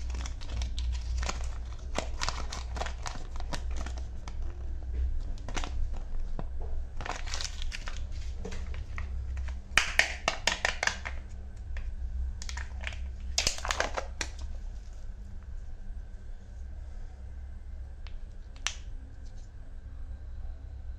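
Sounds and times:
plastic and foil wrapper crinkling: 0:00.0 - 0:15.0.

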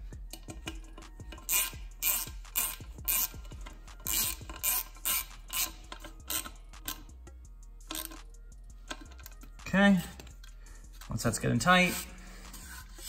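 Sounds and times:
hand ratchet clicking: 0:00.2 - 0:11.1.

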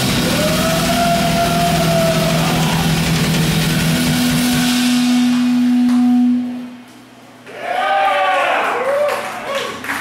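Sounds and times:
death metal band playing live: 0:00.0 - 0:06.6
distorted guitar note ringing: 0:00.0 - 0:07.3.

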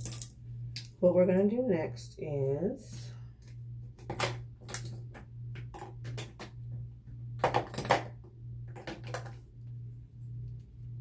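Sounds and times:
low hum: 0:00.0 - 0:11.0
makeup items clattering: 0:07.4 - 0:09.4.

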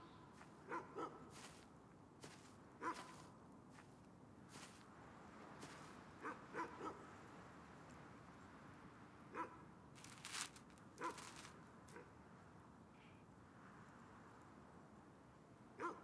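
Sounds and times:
dog barking faintly: 0:00.6 - 0:01.6, 0:02.8 - 0:03.3, 0:06.2 - 0:07.1, 0:15.8 - 0:16.0
rustle of leaves and earth: 0:01.3 - 0:06.2, 0:09.9 - 0:12.0.

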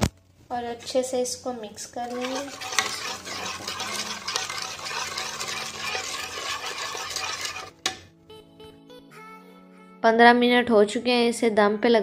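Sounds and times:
spoon stirring thick yogurt: 0:02.0 - 0:08.0
spoon clinking against bowl: 0:02.1 - 0:08.0.

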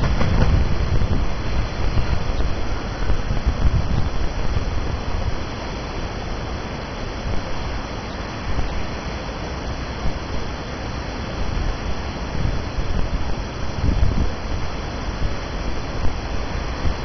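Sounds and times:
wind on microphone: 0:00.0 - 0:05.7, 0:11.3 - 0:17.0.

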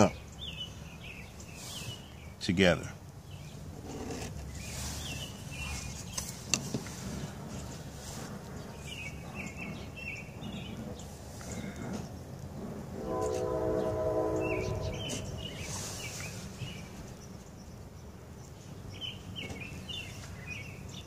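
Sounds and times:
bird chirps: 0:00.0 - 0:02.4, 0:04.4 - 0:06.4, 0:08.6 - 0:12.2, 0:13.1 - 0:21.0
low rumble: 0:11.8 - 0:15.7
horn sounding a chord: 0:13.0 - 0:15.7.

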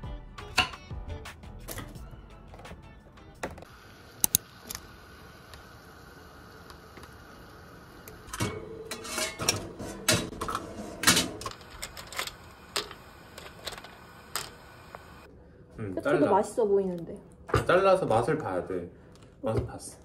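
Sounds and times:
shells clattering in a pot: 0:11.4 - 0:14.7.

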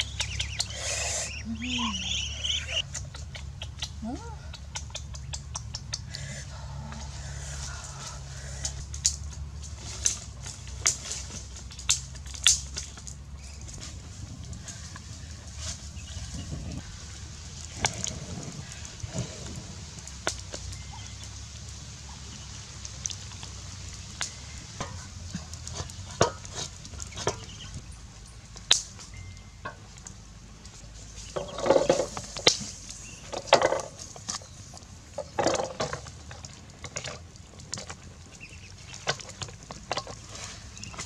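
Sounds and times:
water splashes: 0:15.2 - 0:27.6.

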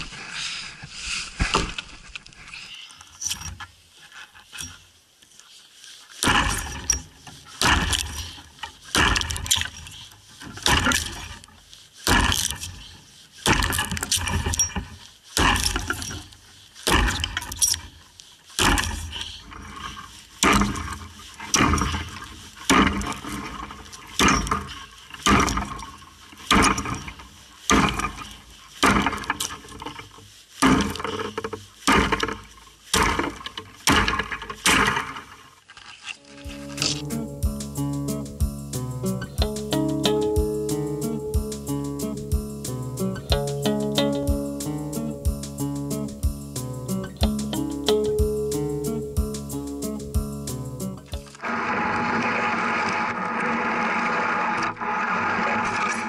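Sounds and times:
axe chopping a log: 0:06.2 - 0:06.8, 0:07.6 - 0:08.3, 0:08.9 - 0:09.6, 0:12.1 - 0:12.6, 0:13.5 - 0:14.2, 0:15.4 - 0:16.1, 0:16.9 - 0:17.6, 0:18.6 - 0:19.1, 0:27.7 - 0:28.1, 0:31.9 - 0:32.4.

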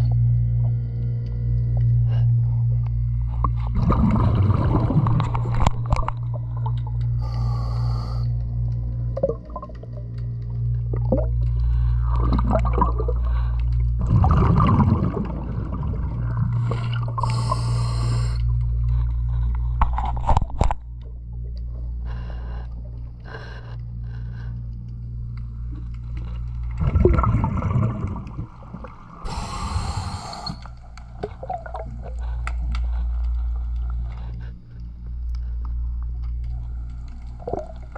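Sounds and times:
steady low hum: 0:00.0 - 0:37.9
exhaled bubbles rushing: 0:03.4 - 0:07.0, 0:09.1 - 0:10.1, 0:10.8 - 0:17.3, 0:26.6 - 0:29.3, 0:31.2 - 0:32.3, 0:37.3 - 0:37.9
regulator hiss of inhaled air: 0:07.2 - 0:08.3, 0:17.1 - 0:18.5, 0:29.2 - 0:30.8.

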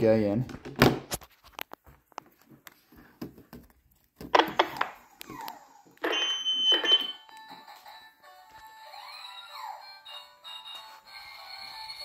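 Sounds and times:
toy electronic sound effects: 0:06.0 - 0:07.2
toy electronic tune: 0:06.0 - 0:07.9, 0:08.8 - 0:12.0.

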